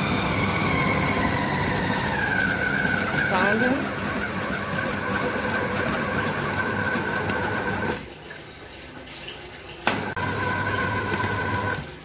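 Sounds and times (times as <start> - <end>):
food processor motor whining: 0.0 - 8.0, 9.9 - 11.9.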